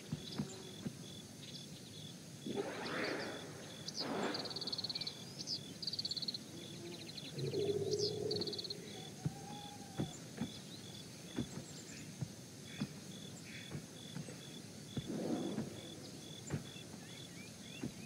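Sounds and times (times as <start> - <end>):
faint bird chirps: 0.0 - 18.0
high insect chirp: 0.0 - 18.0.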